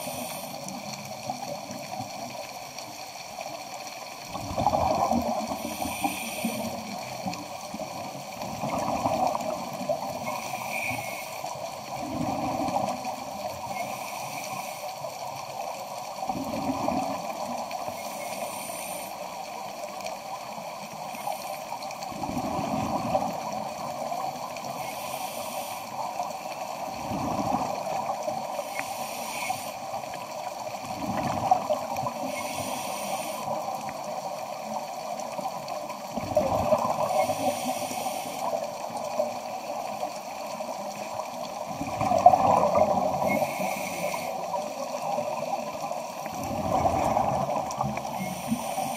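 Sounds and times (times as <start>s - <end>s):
bubbles gurgling underwater: 4.3s - 5.7s, 6.7s - 10.4s, 11.8s - 13.7s, 16.2s - 18.0s, 22.0s - 24.6s, 26.8s - 28.5s, 30.7s - 32.2s, 35.2s - 37.4s, 39.8s - 48.2s
regulator hissing inhalations: 5.5s - 6.8s, 18.0s - 19.2s, 24.7s - 26.1s, 28.6s - 29.8s, 32.3s - 33.6s, 37.2s - 38.6s, 48.1s - 48.9s.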